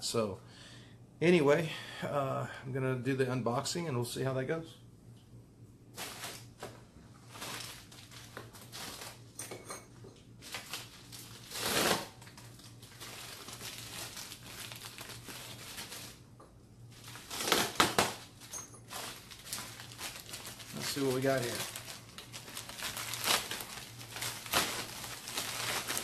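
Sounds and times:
packaging crinkling and rustling: 6.0 - 9.4, 10.4 - 16.2, 16.9 - 26.0.

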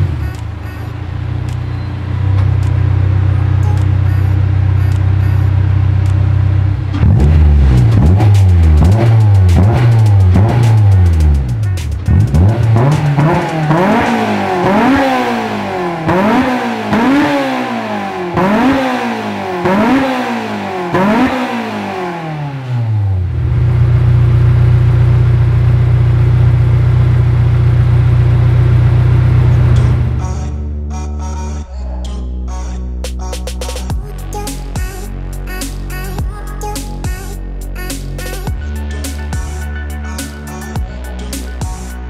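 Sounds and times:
car engine idling: 0.0 - 31.1
car engine revving: 0.0 - 31.4.

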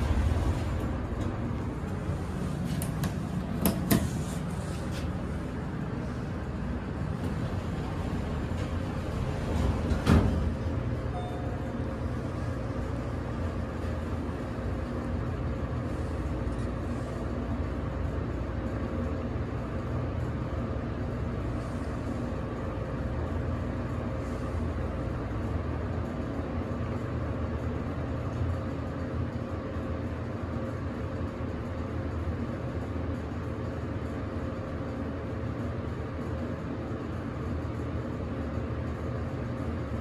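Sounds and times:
elevator hum: 0.0 - 40.0
faint steady tone: 11.1 - 12.0.

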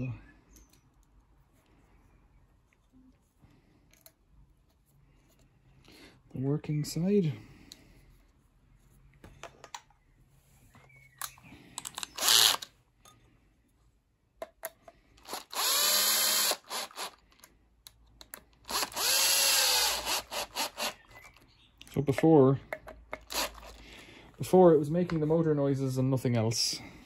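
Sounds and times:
cordless drill whining: 11.9 - 12.7, 15.2 - 17.4, 18.6 - 21.3, 23.3 - 23.9.

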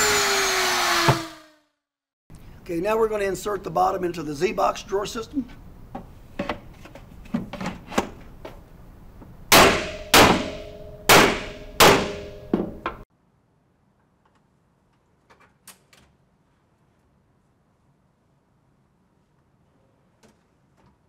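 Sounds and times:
mallet striking metal frame: 9.5 - 13.0
metallic ring: 9.9 - 12.6.

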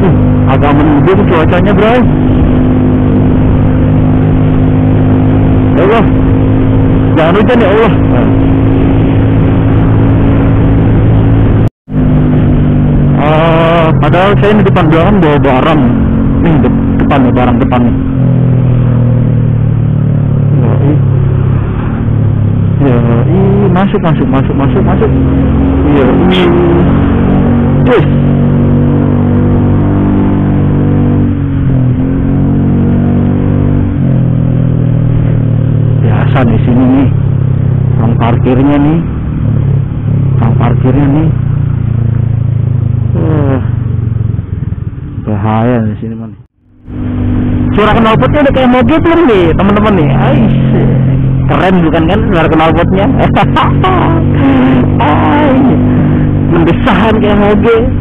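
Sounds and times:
road and wind noise: 0.0 - 58.0
scooter engine droning: 0.0 - 58.0
scooter engine running: 39.1 - 45.8.

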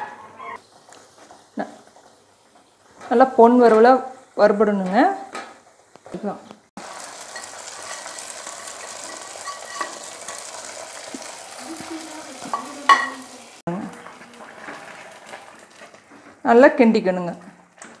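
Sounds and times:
hot ghee sizzling: 0.6 - 17.9
spoon clinking against metal: 7.3 - 10.4, 12.5 - 13.2.

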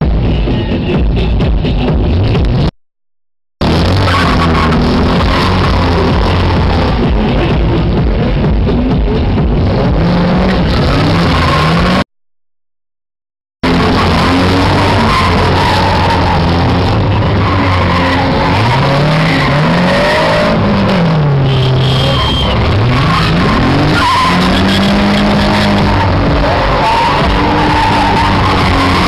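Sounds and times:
tyres skidding on asphalt: 3.6 - 7.9, 8.7 - 12.0, 13.6 - 29.0
car engine revving: 3.6 - 12.1, 13.6 - 29.0.

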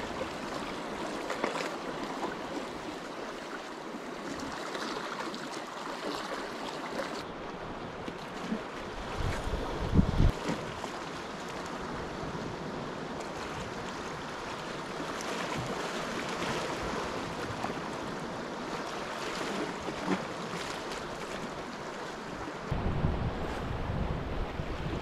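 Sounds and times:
surf washing against rocks: 8.0 - 25.0.

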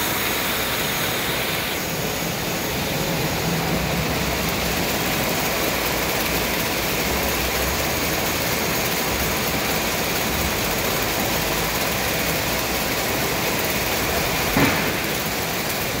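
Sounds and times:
folding machine running: 0.0 - 16.0
sharp clack: 14.5 - 15.5.

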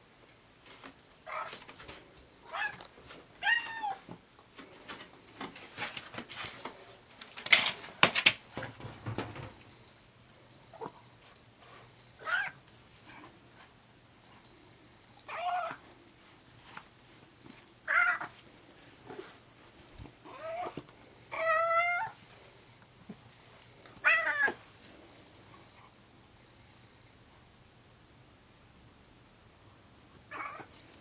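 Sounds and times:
cat yowling: 15.3 - 15.8, 17.9 - 18.3, 20.3 - 22.2, 30.3 - 30.7.

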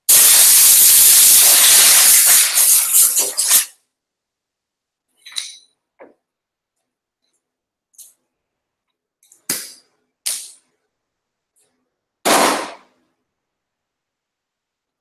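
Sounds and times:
sharp bangs: 12.2 - 13.0.

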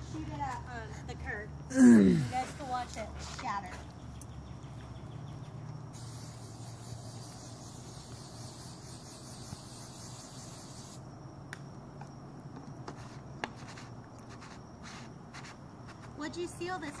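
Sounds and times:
aerosol spray hissing: 6.0 - 11.0.

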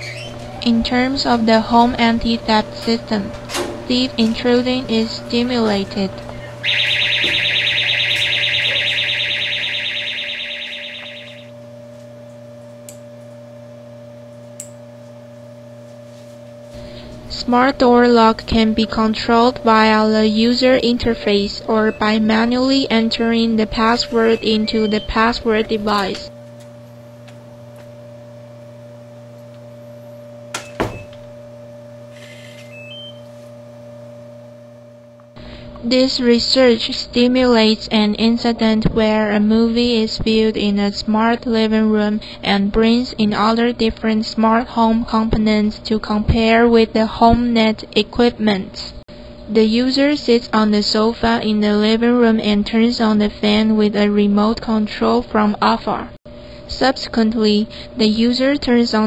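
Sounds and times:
steady low hum: 0.0 - 59.0
pulsing electronic alarm buzz: 2.4 - 11.7, 16.6 - 29.1, 29.8 - 38.3
electronic lock beeps: 6.6 - 11.5, 23.8 - 25.4, 32.2 - 33.3.

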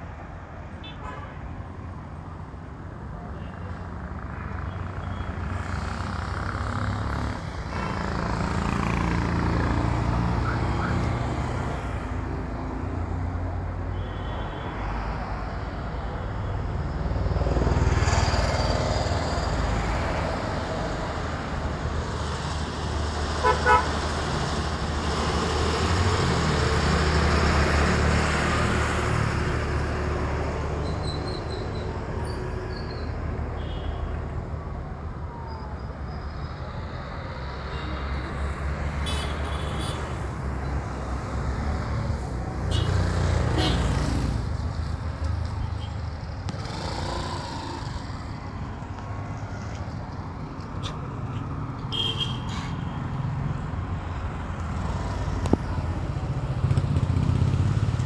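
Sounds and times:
vehicle engines passing: 1.8 - 14.0, 14.8 - 58.0
vehicle horn tooting: 23.4 - 23.9, 51.9 - 52.6.

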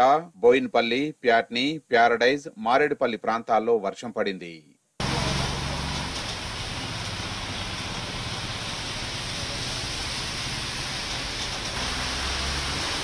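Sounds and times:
heavy rain: 5.0 - 13.0
traffic hiss on wet road: 5.0 - 13.0
vehicle passing rumble: 5.0 - 13.0.

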